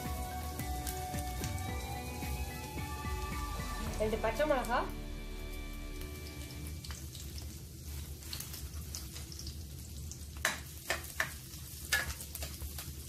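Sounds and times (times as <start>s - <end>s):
garlic sizzling in oil: 0.0s - 13.0s
spatula tapping and scraping pan: 10.4s - 12.6s.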